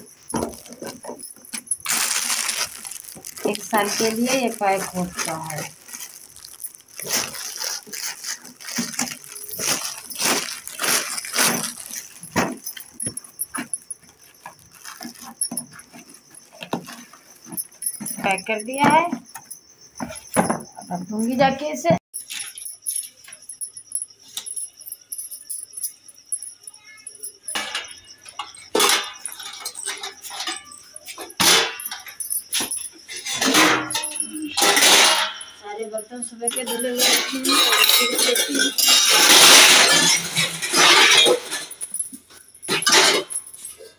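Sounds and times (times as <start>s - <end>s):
plastic wrapping rustling: 0.0s - 18.6s
steel plates clattering: 27.5s - 41.9s, 42.6s - 43.5s.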